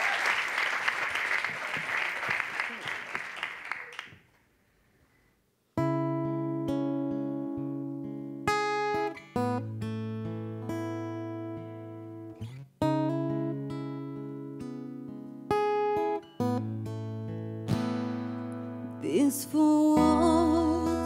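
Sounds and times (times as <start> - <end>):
applause: 0.0 - 4.4
acoustic guitar strumming chords: 5.8 - 21.0.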